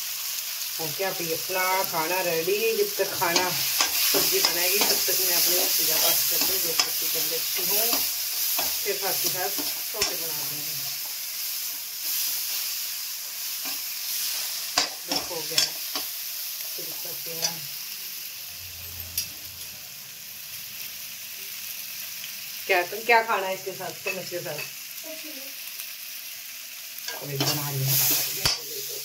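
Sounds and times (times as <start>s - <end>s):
vegetables sizzling in a pan: 0.0s - 29.0s
spatula scraping a pan: 3.1s - 12.8s.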